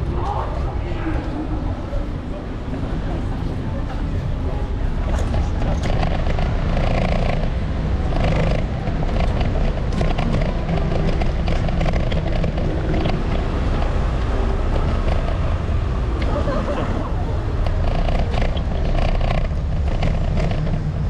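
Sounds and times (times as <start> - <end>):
wind noise on microphone: 0.0 - 21.0
electric kickboard rumbling over bricks: 1.6 - 21.0
light clicks and rattles: 5.0 - 15.4.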